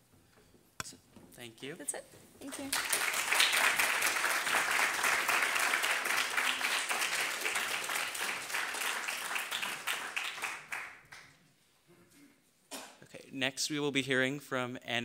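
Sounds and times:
audience applauding: 2.4s - 11.4s.

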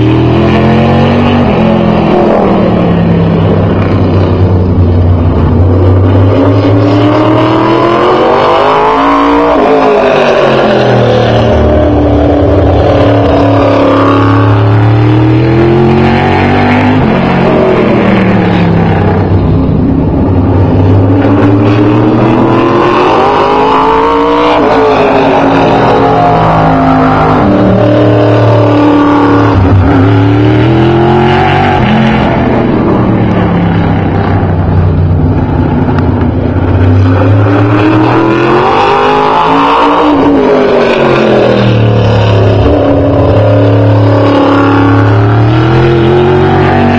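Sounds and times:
race car engine revving: 0.0s - 46.9s.

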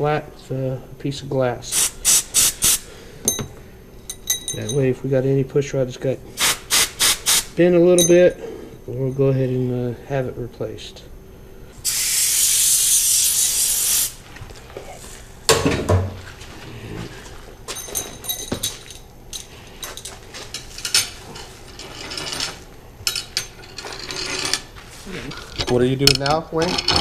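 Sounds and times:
compressed air blow gun hissing: 1.7s - 2.9s, 6.4s - 7.5s, 11.8s - 14.2s
metal parts clinking and knocking: 4.1s - 4.9s, 17.7s - 24.7s, 25.3s - 27.0s.

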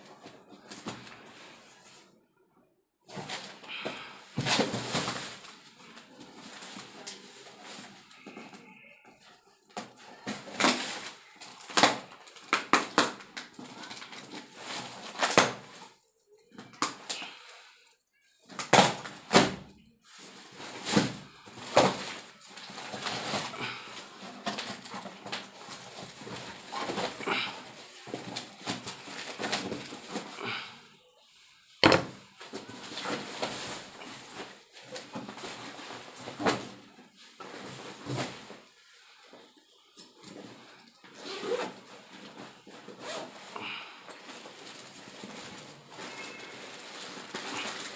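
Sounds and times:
packing tape ripping: 10.5s - 15.7s.

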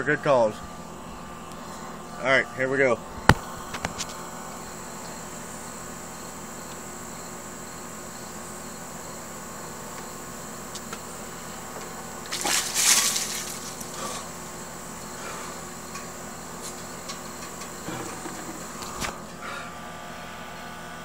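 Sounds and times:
high insect drone: 0.0s - 21.0s
water splashing over person: 12.3s - 14.1s.

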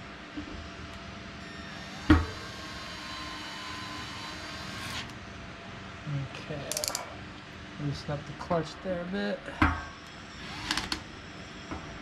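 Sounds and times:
drill motor whine: 1.4s - 5.2s, 10.0s - 12.0s
drill clutch rapid clicking: 10.4s - 11.0s.

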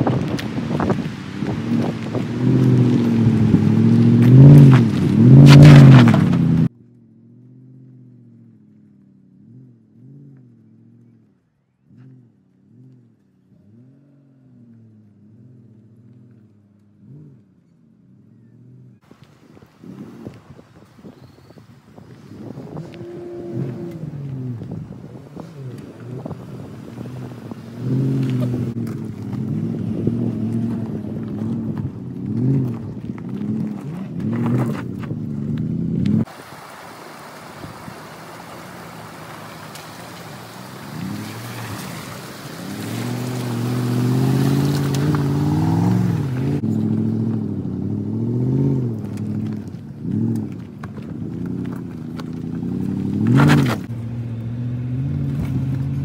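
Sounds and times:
tyres crunching on stones: 0.0s - 6.8s, 23.5s - 47.6s, 48.5s - 54.0s
engine revving: 1.2s - 19.0s, 22.7s - 36.3s, 38.2s - 56.0s
distant engine: 22.7s - 56.0s.

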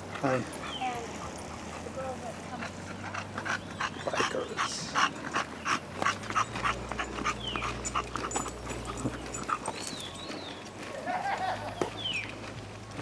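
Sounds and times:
dog panting hard: 0.0s - 10.3s.

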